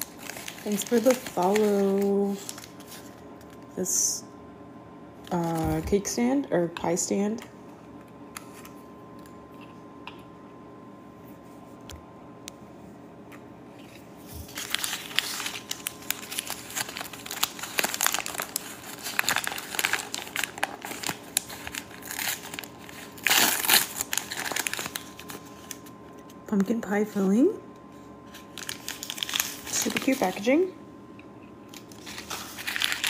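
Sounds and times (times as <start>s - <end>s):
foil wrapper crinkling: 0.0s - 3.7s, 14.2s - 26.4s, 28.3s - 30.7s, 31.7s - 33.0s.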